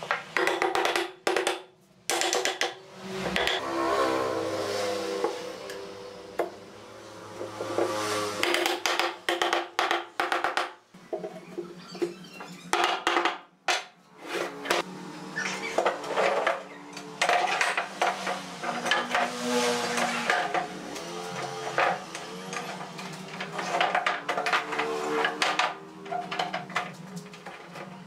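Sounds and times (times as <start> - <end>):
wooden mallet knocking on boards: 0.4 - 3.6.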